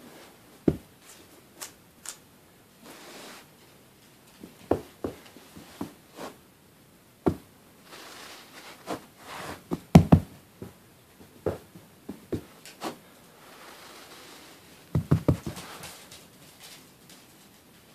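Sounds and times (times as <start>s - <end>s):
skunk stomping on carpet: 9.7s - 10.8s, 14.9s - 15.7s.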